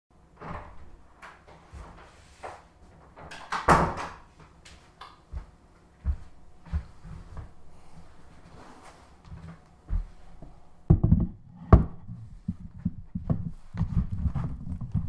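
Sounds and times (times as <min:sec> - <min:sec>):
heavy footsteps on floor: 0:05.3 - 0:15.0
knocks and clunks: 0:10.9 - 0:15.0.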